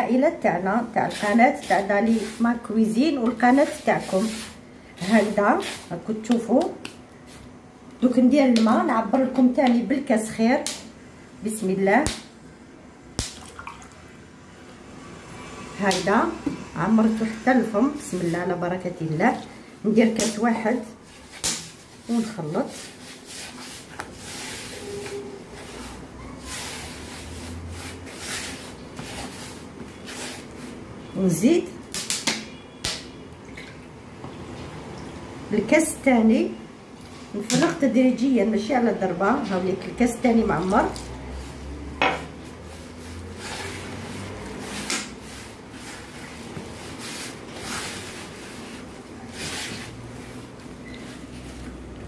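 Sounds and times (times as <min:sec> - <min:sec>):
hands kneading dough in bowl: 0:00.0 - 0:10.8, 0:17.0 - 0:33.2, 0:39.3 - 0:52.0.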